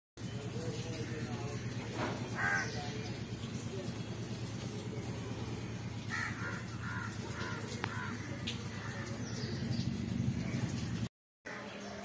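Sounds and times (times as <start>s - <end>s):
crow cawing: 2.3s - 2.9s, 6.0s - 9.3s.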